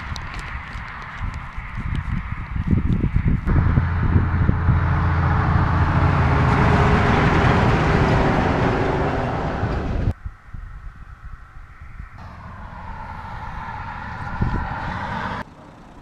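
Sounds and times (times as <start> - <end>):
heavy vehicle engine drone: 3.5 - 10.2, 12.2 - 16.0.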